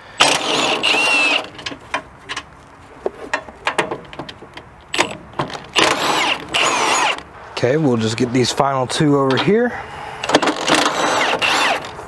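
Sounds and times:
impact wrench running: 0:00.2 - 0:01.7, 0:05.7 - 0:07.3, 0:10.2 - 0:12.0
light metallic clicks and knocks: 0:01.5 - 0:05.8.

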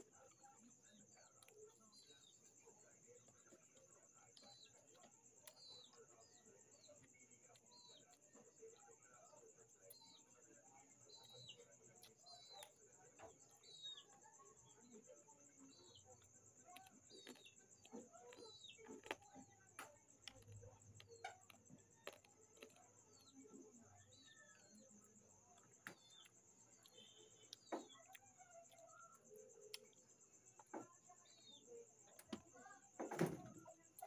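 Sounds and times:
bird chirping: 0:00.0 - 0:34.0
mouth chewing clicks: 0:16.2 - 0:23.4.

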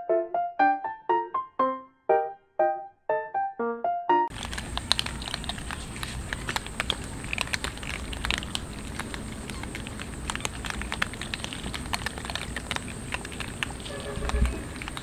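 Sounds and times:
cats chewing and lip-smacking: 0:04.3 - 0:15.0.

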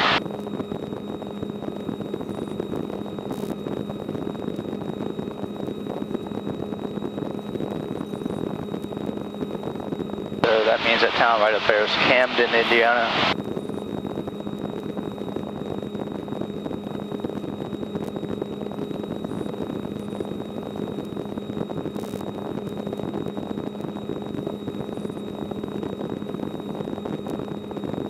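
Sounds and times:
helicopter engine and rotor drone: 0:00.0 - 0:28.0
thin high whine: 0:00.0 - 0:28.0.

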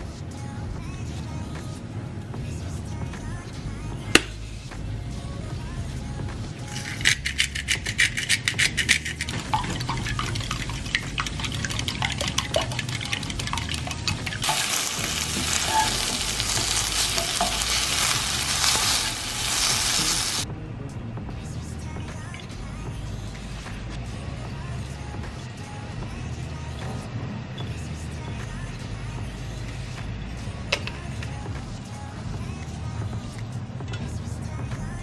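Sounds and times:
fork beating eggs in a bowl: 0:06.7 - 0:20.4
spatula stirring in a pan: 0:08.5 - 0:20.4
vegetables sizzling in a frying pan: 0:14.4 - 0:20.4.

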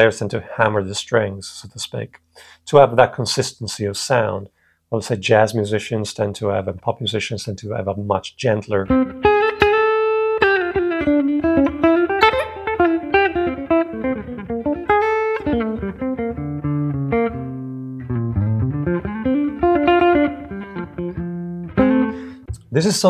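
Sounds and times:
clean electric guitar jazz line: 0:08.8 - 0:23.0.

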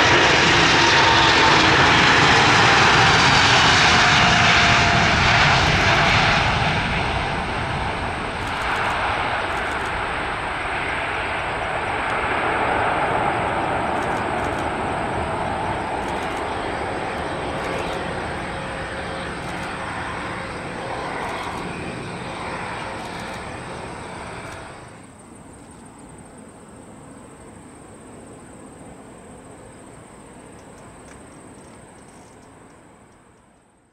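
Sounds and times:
jet airliner taking off: 0:00.0 - 0:26.5.

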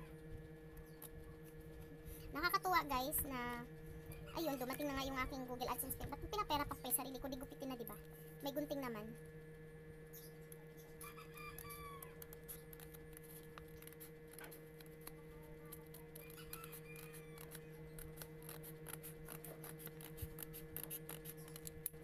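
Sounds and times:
steady low hum: 0:00.0 - 0:22.0
scissors snipping paper: 0:12.2 - 0:22.0.

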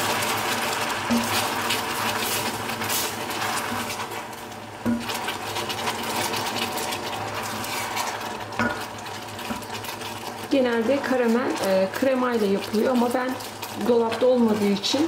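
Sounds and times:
caramel bubbling and crackling: 0:00.0 - 0:15.0.

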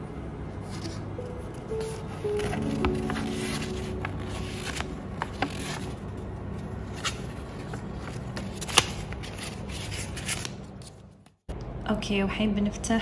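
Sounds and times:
paper leaflet rustling: 0:01.8 - 0:06.2.

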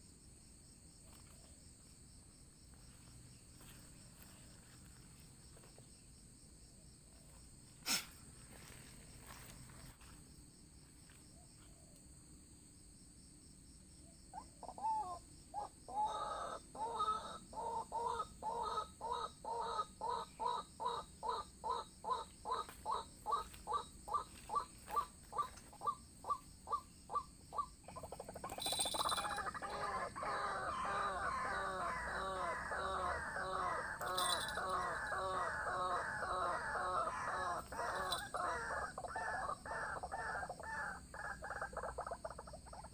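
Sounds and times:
waterhens calling: 0:28.0 - 0:42.0.

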